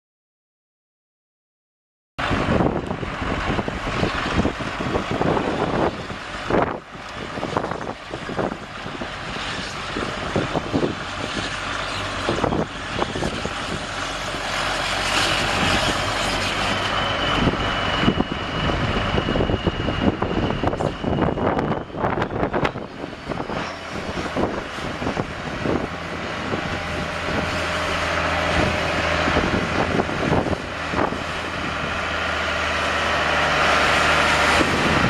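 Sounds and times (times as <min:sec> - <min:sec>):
diesel engine running: 0:02.2 - 0:35.0
high steady whine: 0:02.2 - 0:35.0.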